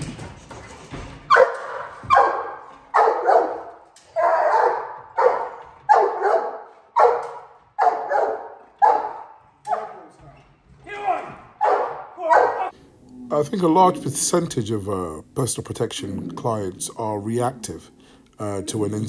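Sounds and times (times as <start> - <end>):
large dog barking: 1.3 - 10.1, 11.6 - 12.7.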